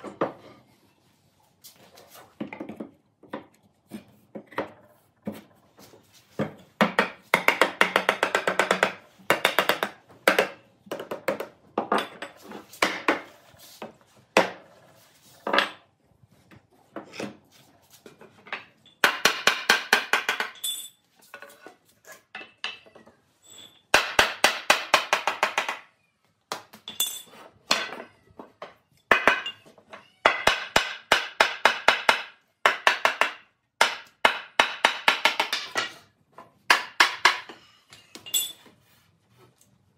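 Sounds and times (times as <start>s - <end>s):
hammer striking wood: 30.4s - 35.9s, 36.7s - 37.5s.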